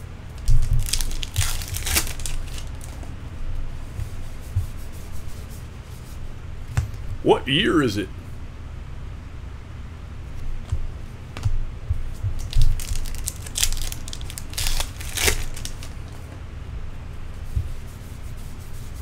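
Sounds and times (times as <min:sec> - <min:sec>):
cards clicking and rustling: 0:00.4 - 0:03.0, 0:12.4 - 0:16.2
wrapper tearing and crinkling: 0:00.4 - 0:03.0, 0:12.4 - 0:16.1.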